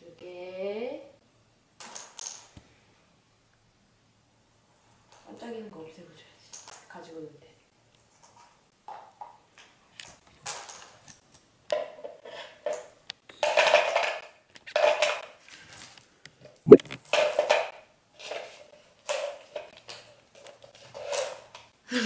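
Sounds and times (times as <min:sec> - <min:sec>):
plastic beads rattling on wooden floor: 0:12.6 - 0:15.9.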